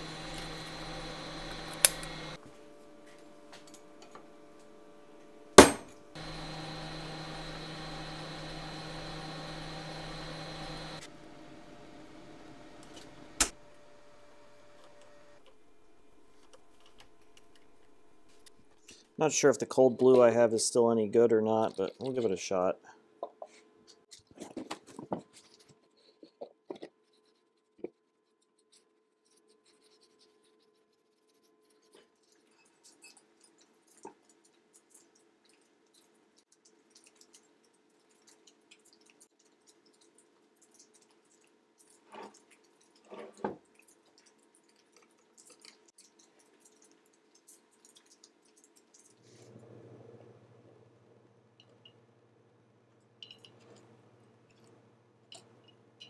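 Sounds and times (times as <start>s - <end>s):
drill press drilling into metal: 0.0s - 2.4s, 5.6s - 11.1s
sharp metallic clank: 5.6s - 6.0s.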